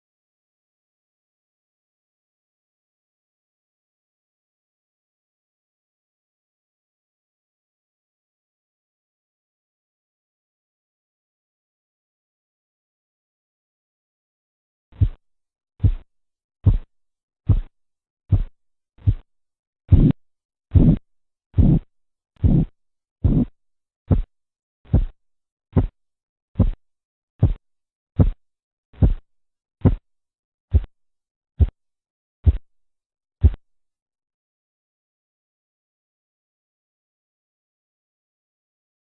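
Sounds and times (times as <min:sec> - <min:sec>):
pulse thumps through stethoscope: 0:15.0 - 0:15.2, 0:15.8 - 0:16.0, 0:16.6 - 0:16.9, 0:17.5 - 0:17.7, 0:18.3 - 0:19.3, 0:19.9 - 0:21.0, 0:21.6 - 0:23.5, 0:24.1 - 0:24.3, 0:24.9 - 0:25.2, 0:25.8 - 0:26.0, 0:26.6 - 0:26.8, 0:27.4 - 0:27.6, 0:28.2 - 0:28.4, 0:29.0 - 0:29.2, 0:29.8 - 0:30.0, 0:30.7 - 0:30.9, 0:32.4 - 0:32.7, 0:33.4 - 0:33.6.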